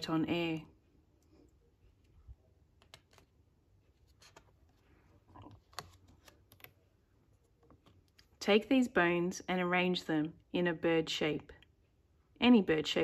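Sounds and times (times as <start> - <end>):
book page turning: 2.8 - 6.8.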